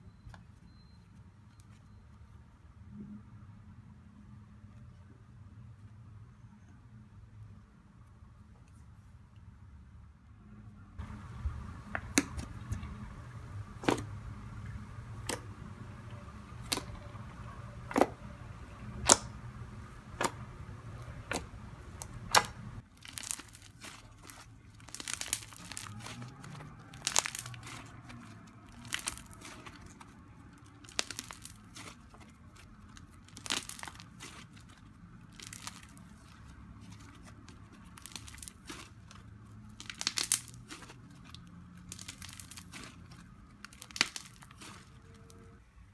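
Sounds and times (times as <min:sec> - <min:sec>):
slime crackling: 0:11.0 - 0:45.5.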